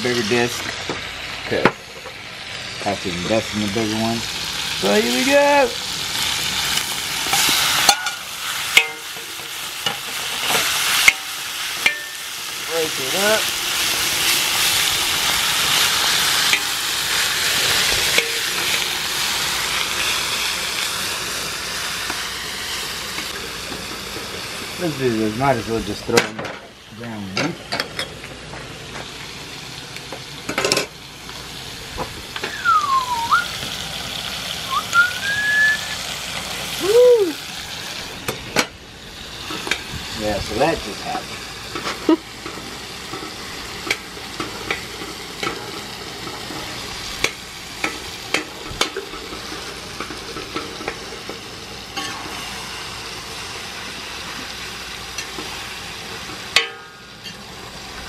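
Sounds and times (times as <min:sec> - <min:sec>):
steak sizzling on hot metal: 0:00.0 - 0:58.0
whistled sliding note: 0:32.4 - 0:33.6, 0:34.7 - 0:36.0
metal spatula scraping and clinking: 0:52.0 - 0:52.3.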